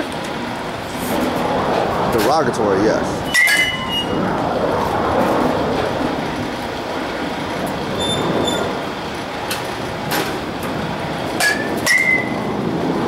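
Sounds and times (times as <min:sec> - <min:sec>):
steady rumbling noise: 0:00.0 - 0:13.0
bat hitting ball with ping: 0:11.4 - 0:12.3.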